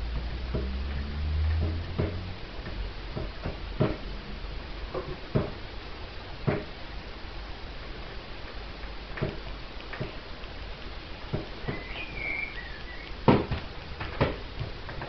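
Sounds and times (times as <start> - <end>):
low hum: 0.0 - 5.2
light knocks and clicks: 0.2 - 4.1.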